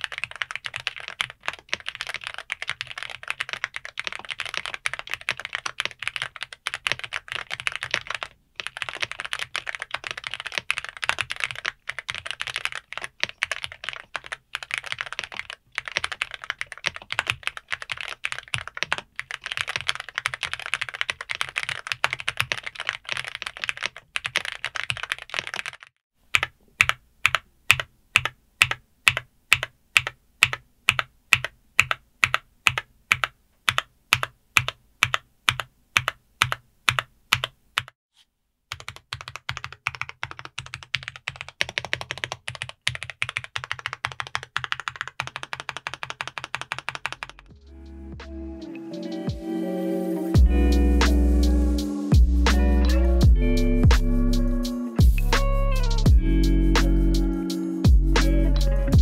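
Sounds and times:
fast typing on mechanical keyboard: 0.0 - 37.9, 38.7 - 47.4.

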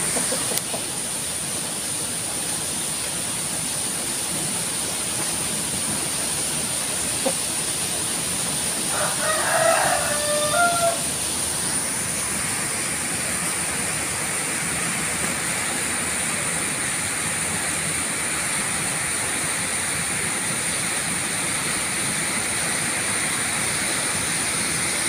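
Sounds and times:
high-pitched background hiss: 0.0 - 25.0
rooster crowing: 8.9 - 11.1.

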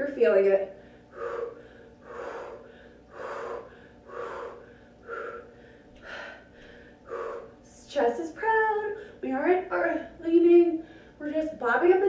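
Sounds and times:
woman breathing hard: 0.8 - 7.8, 10.8 - 11.2.

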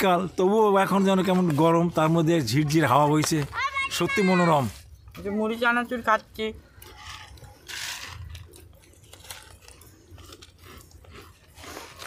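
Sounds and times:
crunchy chewing of puffed rice: 6.1 - 12.0.

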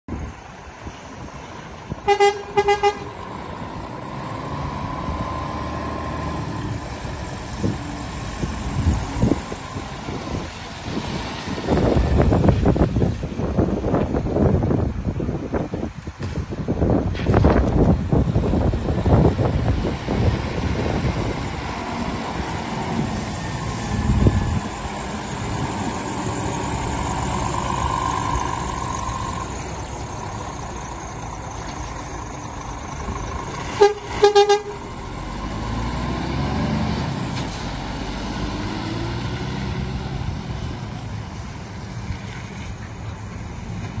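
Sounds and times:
truck horn toots: 2.1 - 3.2, 33.7 - 34.9
truck diesel engine running: 18.0 - 41.8.

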